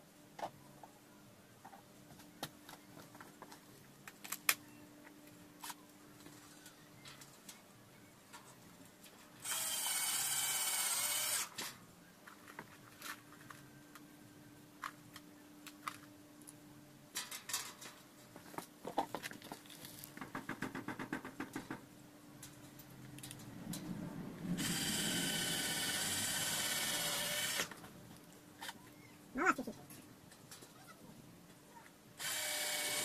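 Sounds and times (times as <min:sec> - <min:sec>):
power drill running: 0:09.4 - 0:11.5, 0:24.6 - 0:27.7, 0:32.2 - 0:33.0.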